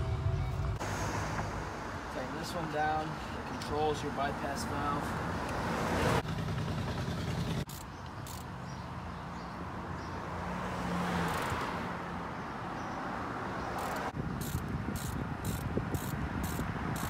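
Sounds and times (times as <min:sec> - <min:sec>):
car passing: 0:00.8 - 0:07.1, 0:08.3 - 0:17.0
sharp ticks: 0:07.7 - 0:08.5, 0:13.8 - 0:17.0.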